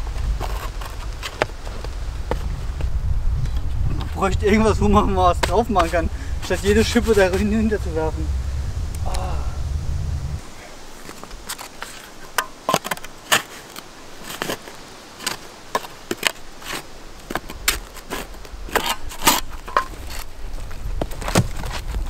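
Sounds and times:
spade scraping ash and stones: 5.4 - 7.9, 10.9 - 20.3
hand brush sweeping ash: 5.4 - 8.2.

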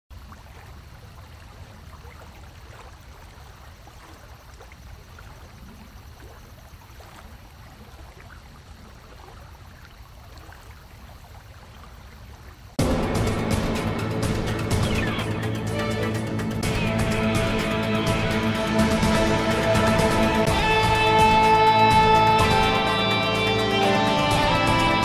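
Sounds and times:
music: 12.8 - 25.0.

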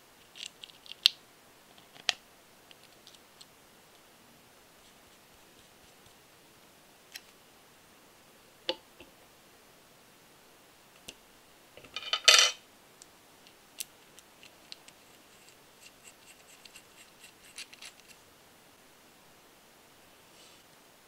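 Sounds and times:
metal parts clattering: 11.8 - 12.6.

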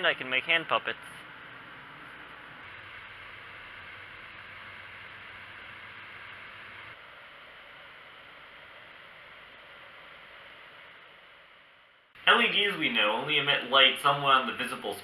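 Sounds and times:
steady background hiss: 9.4 - 15.0.

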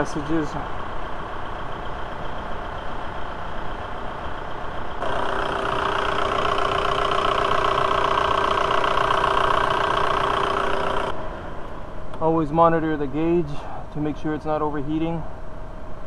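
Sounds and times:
diesel engine idling: 0.0 - 11.4.

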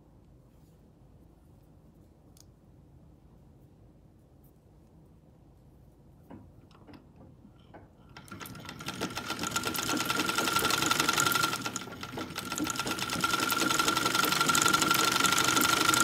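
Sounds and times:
soft clicks: 2.3 - 2.6
sewing machine clatter and whine: 8.1 - 16.0.

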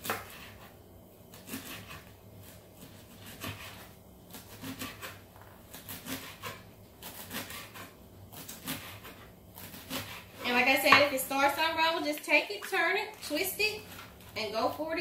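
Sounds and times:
knife slicing leaves on wooden board: 0.0 - 0.7, 1.3 - 11.1.

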